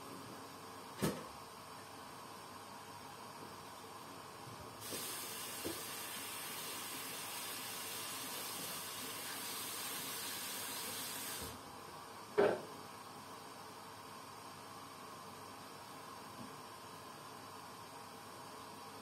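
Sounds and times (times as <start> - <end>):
steady hiss of air: 4.8 - 11.7.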